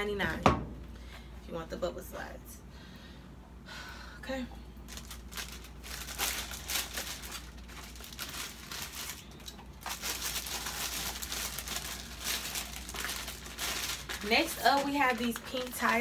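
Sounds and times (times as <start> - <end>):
plastic bags crinkling: 4.8 - 16.0.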